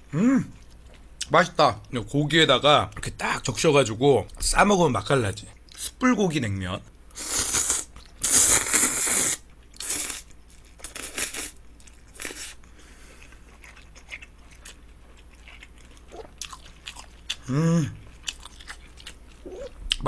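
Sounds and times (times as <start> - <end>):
person humming: 0.1 - 0.5, 17.4 - 18.1
wet chewing: 9.7 - 17.4, 18.1 - 20.0.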